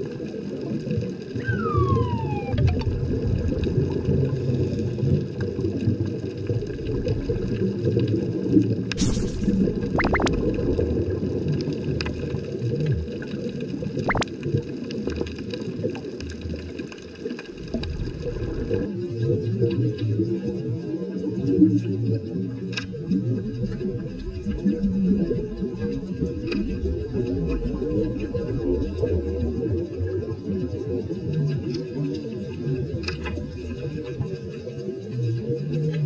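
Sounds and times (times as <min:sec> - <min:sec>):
underwater crackling wash: 0:00.0 - 0:36.0
short hissing burst: 0:09.0 - 0:10.2.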